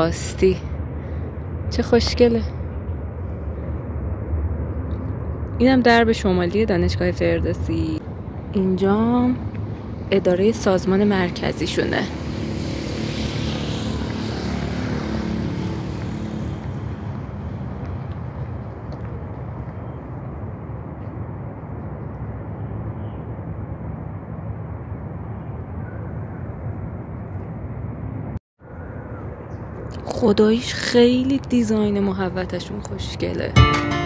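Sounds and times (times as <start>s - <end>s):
low rumble of traffic: 0.0s - 34.0s
motor vehicle passing: 9.2s - 22.1s.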